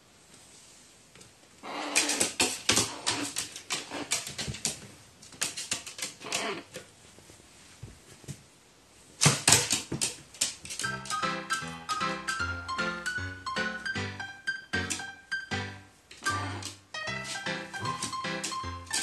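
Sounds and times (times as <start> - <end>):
crow's claws tapping on wooden floor: 9.2 - 11.2.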